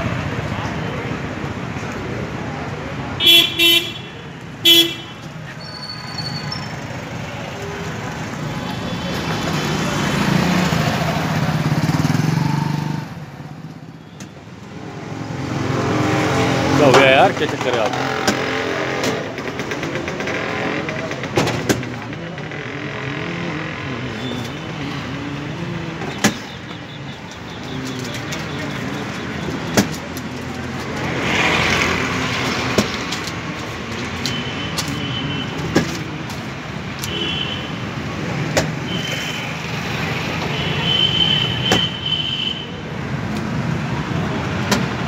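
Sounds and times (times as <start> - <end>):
street traffic noise: 0.0 - 45.0
vehicle horn honking: 3.2 - 5.2
indistinct voices: 15.0 - 37.1.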